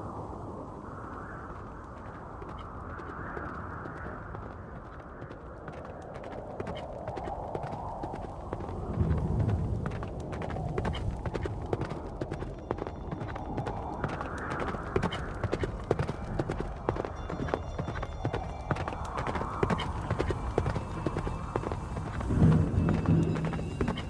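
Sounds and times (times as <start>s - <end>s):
steady low rumble: 7.3s - 24.0s.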